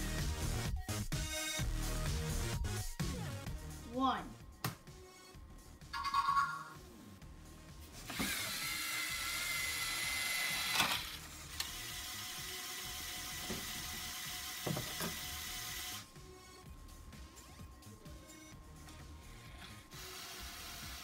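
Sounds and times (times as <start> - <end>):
robot motors whining: 8.1 - 16.1.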